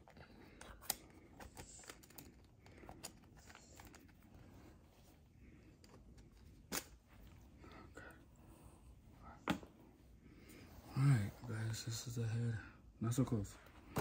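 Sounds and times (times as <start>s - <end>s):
hands clicking toy packaging: 0.4s - 4.2s.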